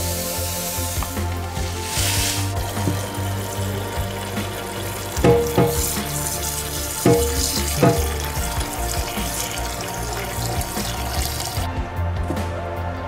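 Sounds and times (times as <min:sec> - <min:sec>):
tap water splashing into pot: 0:02.5 - 0:11.7
short knocks: 0:05.2 - 0:06.0.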